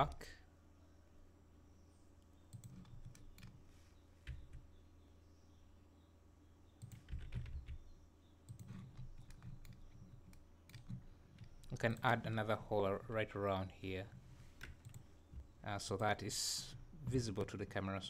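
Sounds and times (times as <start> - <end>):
keyboard and mouse clicks: 2.5 - 3.6, 6.8 - 7.9, 8.5 - 12.1, 14.6 - 15.1.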